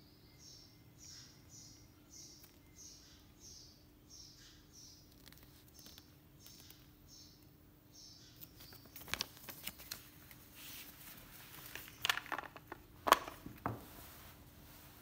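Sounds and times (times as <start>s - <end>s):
paper packaging rustling: 8.4s - 14.4s.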